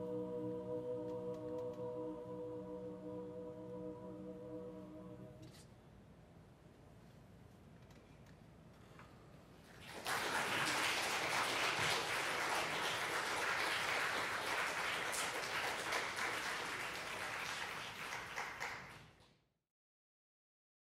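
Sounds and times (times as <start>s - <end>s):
audience applause: 9.7s - 19.2s.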